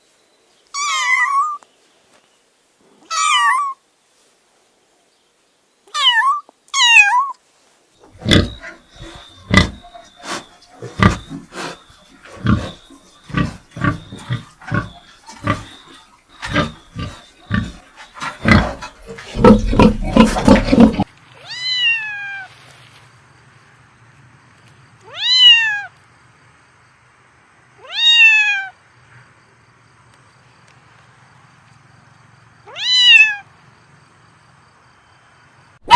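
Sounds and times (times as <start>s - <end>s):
cat meowing: 0.8s - 1.6s, 3.1s - 3.8s, 5.9s - 7.4s, 21.4s - 22.5s, 25.1s - 25.9s, 27.8s - 28.7s, 32.7s - 33.4s.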